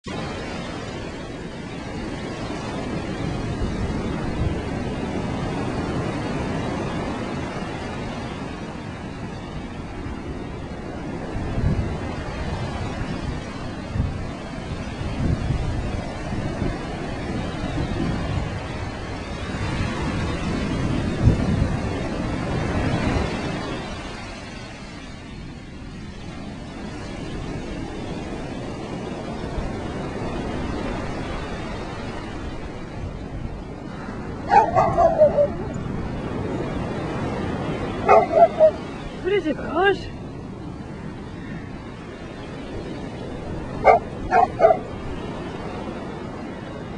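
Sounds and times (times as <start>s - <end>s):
ocean surf breaking on beach: 0.0s - 46.9s
wind rumbling on microphone: 0.0s - 46.9s.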